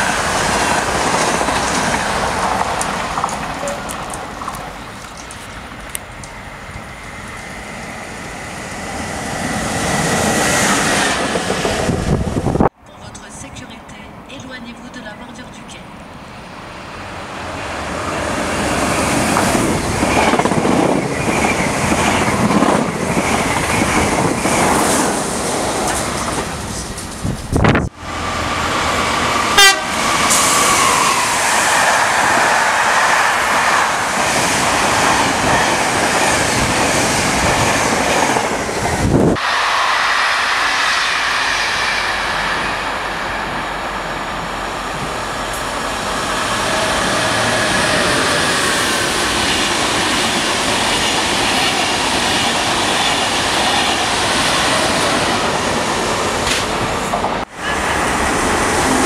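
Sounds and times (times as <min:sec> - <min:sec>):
train wheels clicking on rails: 0:00.0 - 0:12.4, 0:18.3 - 0:27.6, 0:28.4 - 0:59.0
train horn: 0:29.5 - 0:30.4.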